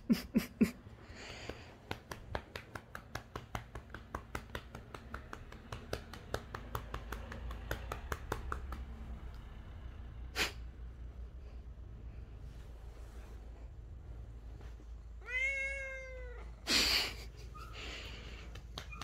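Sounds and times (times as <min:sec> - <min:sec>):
hand patting cat fur: 0:01.2 - 0:09.3, 0:17.4 - 0:19.0.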